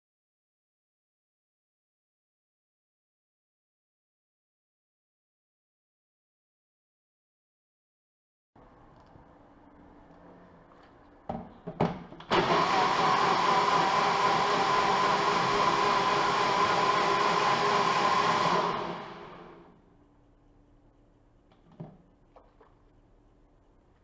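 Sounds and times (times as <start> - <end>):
blender motor running: 12.3 - 19.7.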